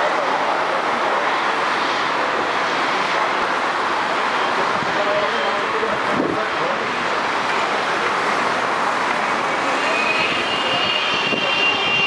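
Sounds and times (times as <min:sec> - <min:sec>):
high jet engine whine: 0:00.0 - 0:12.0.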